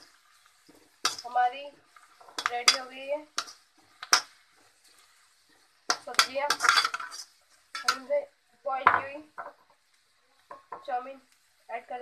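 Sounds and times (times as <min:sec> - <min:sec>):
metal spatula scraping metal pan: 0:00.0 - 0:08.1.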